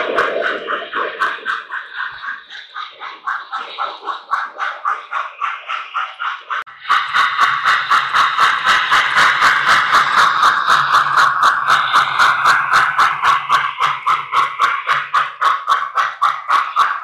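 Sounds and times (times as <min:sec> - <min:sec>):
low hum: 0:00.0 - 0:06.7
model locomotive steam chuffing: 0:00.0 - 0:17.0.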